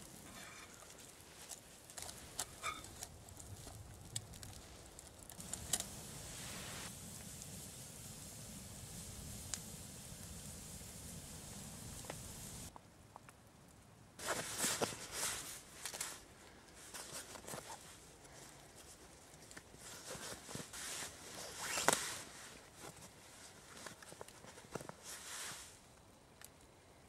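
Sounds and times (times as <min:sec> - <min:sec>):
nylon fabric rustling: 0:19.8 - 0:25.7
strap buckle clicks and scrapes: 0:21.3 - 0:22.2.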